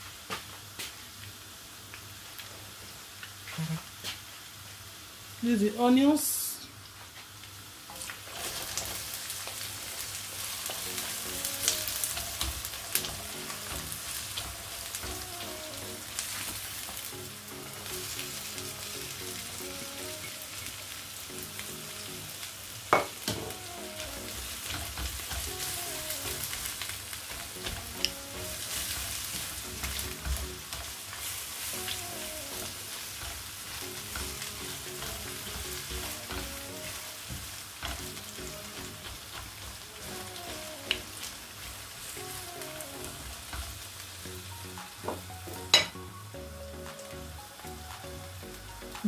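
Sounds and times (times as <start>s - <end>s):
onion sizzling in hot oil: 0.0s - 49.0s
spatula stirring: 24.3s - 41.0s.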